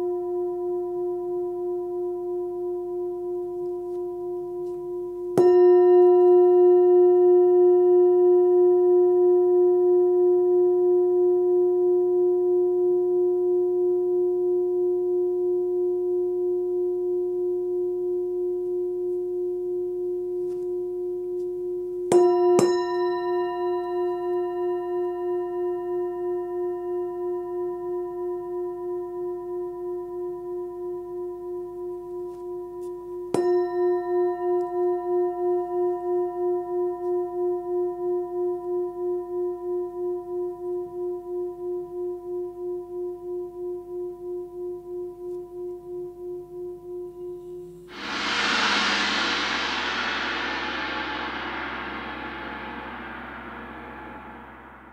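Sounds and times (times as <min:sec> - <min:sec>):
singing bowl ringing: 0:05.4 - 0:08.9, 0:22.1 - 0:28.3, 0:33.4 - 0:38.3.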